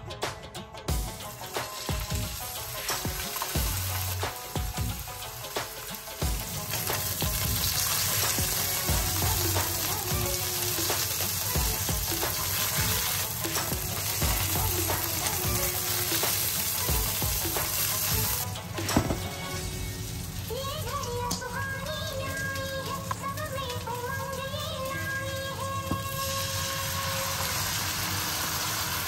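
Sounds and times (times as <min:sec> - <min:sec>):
meat sizzling in a pan: 0:00.9 - 0:21.0, 0:25.9 - 0:29.0.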